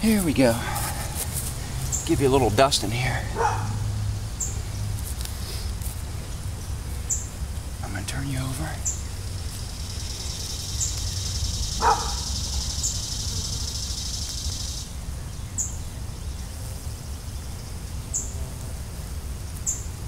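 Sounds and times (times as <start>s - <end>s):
bird chirping: 0.0s - 5.0s, 6.2s - 18.4s
high insect buzz: 0.0s - 20.0s.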